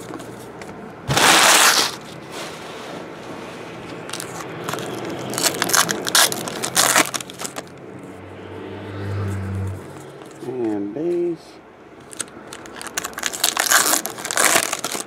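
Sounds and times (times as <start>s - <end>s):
foil wrapper crinkling: 4.1s - 7.7s, 12.1s - 15.0s.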